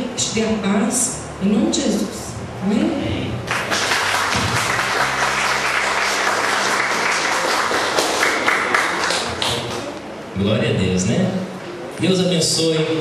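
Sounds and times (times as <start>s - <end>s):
crowd applauding: 3.5s - 10.0s.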